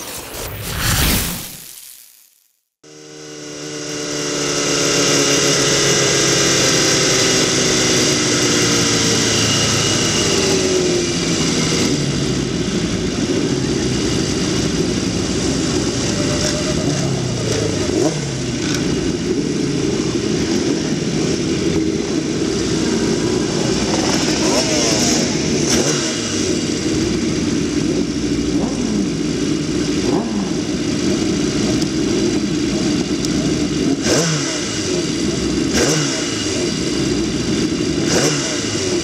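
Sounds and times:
motorcycle engines idling: 2.9s - 34.0s, 34.6s - 39.0s
engine revving: 14.2s - 31.8s, 33.7s - 39.0s.

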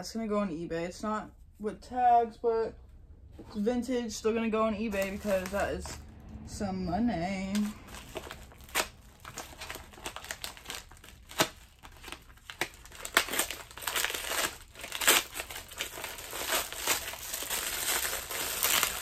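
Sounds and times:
paper packaging tearing: 4.8s - 6.0s, 7.8s - 19.0s
plastic wrapping crinkling: 4.8s - 6.0s, 7.6s - 19.0s.

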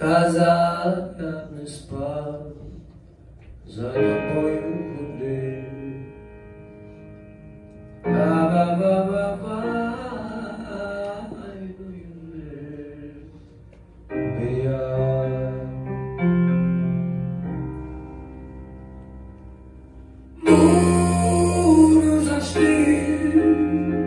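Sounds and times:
keyboard chords: 4.0s - 11.7s, 13.3s - 24.0s
double bass: 14.2s - 24.0s.

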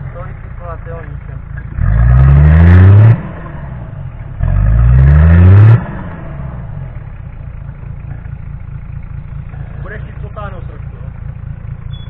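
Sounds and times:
engine revving: 0.0s - 7.2s.

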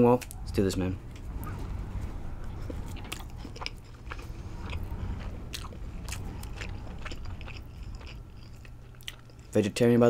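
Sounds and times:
person biting and chewing food: 2.9s - 9.6s.

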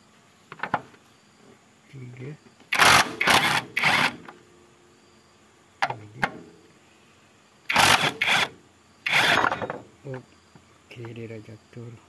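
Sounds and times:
wrench clicks: 7.7s - 8.5s.

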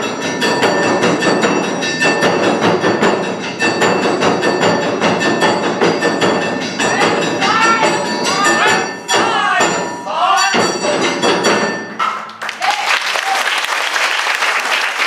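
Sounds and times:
drums in quick steady rhythm: 0.0s - 12.4s.

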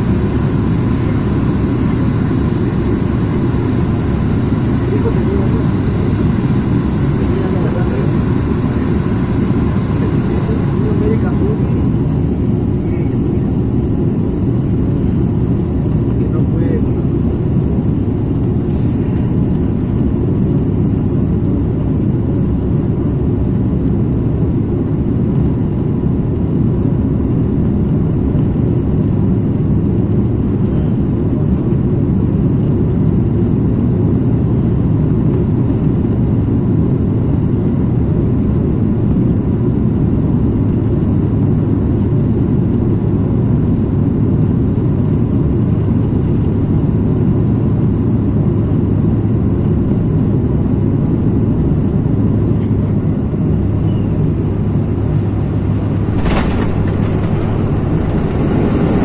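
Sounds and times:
faint high whine: 0.0s - 18.1s
propeller engines droning: 0.0s - 59.0s
rushing air: 17.1s - 21.1s, 52.4s - 59.0s.

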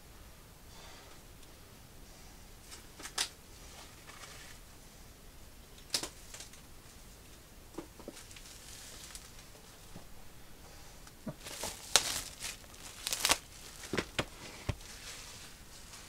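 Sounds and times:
plastic wrap rustling: 8.0s - 10.0s, 11.2s - 16.0s.

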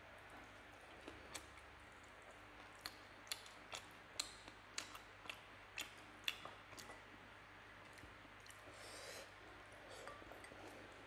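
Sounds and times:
wet chewing smacks: 0.3s - 7.1s.

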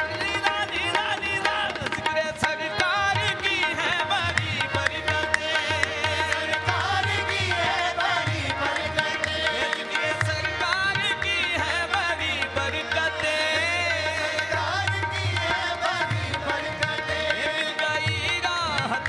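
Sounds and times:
harmoniums: 0.0s - 19.0s
tabla: 0.0s - 19.0s.

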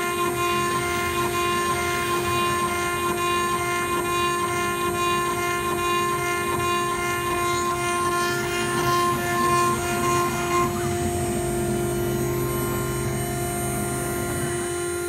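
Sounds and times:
router spindle whine: 0.0s - 15.0s.

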